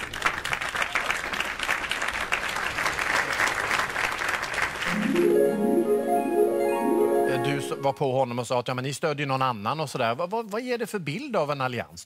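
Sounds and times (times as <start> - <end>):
audience applauding: 0.0 - 7.8
plucked-string music: 4.9 - 8.0.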